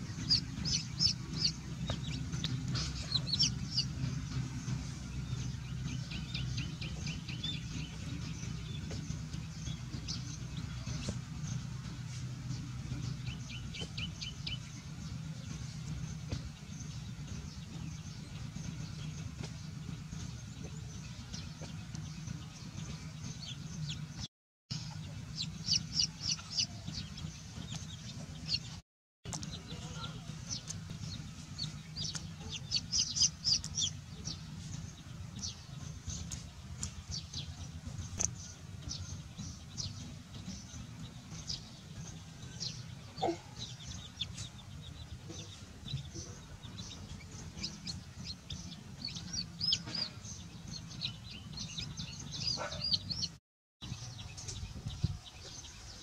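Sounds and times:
bird chirping: 0.0s - 56.0s
low rumble: 0.0s - 56.0s
steady low hum: 0.0s - 56.0s.

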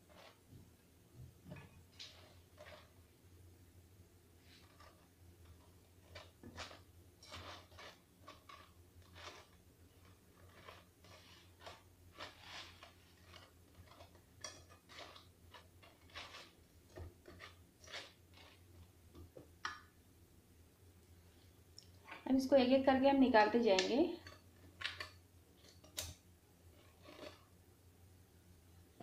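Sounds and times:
spatula scraping a pot: 0.0s - 0.5s, 1.9s - 3.0s, 4.4s - 18.9s, 26.7s - 27.6s
low steady hum: 0.0s - 29.0s.

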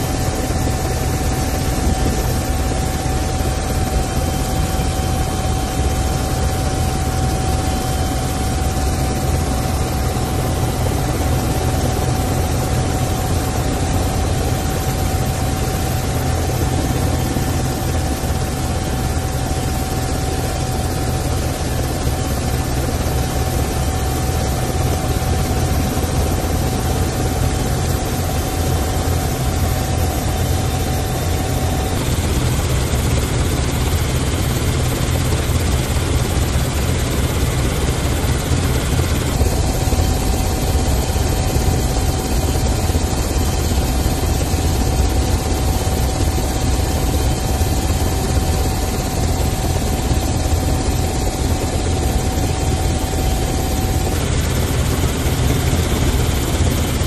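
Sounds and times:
helicopter engine and rotor drone: 0.0s - 57.0s
thin steady whine: 0.0s - 57.0s.

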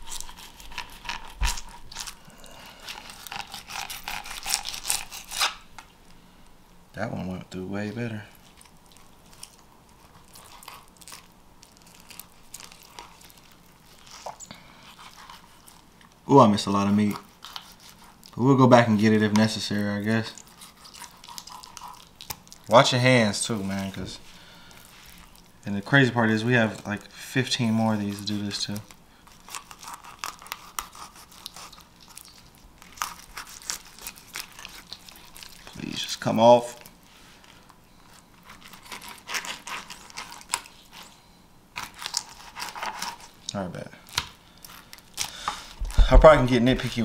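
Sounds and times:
knife cutting fish skin: 0.0s - 2.2s, 2.8s - 5.6s, 29.4s - 32.3s, 38.6s - 41.0s
knife scraping fish skin: 0.0s - 5.7s, 9.3s - 15.9s, 17.0s - 18.3s, 20.3s - 22.4s, 29.3s - 35.7s, 38.4s - 41.1s, 41.8s - 43.4s.

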